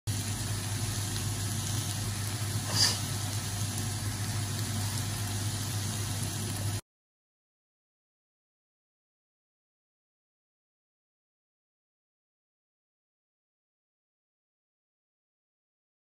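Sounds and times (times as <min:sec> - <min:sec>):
eggs sizzling in a frying pan: 0:00.1 - 0:06.8
spatula scraping a pan: 0:02.6 - 0:03.2.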